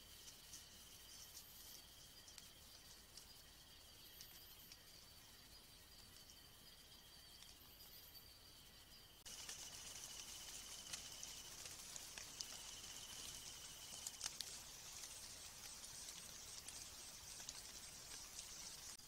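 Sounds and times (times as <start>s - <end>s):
insect hiss: 0.0s - 19.0s
insects trilling: 0.0s - 19.0s
faint clicks: 9.3s - 19.0s.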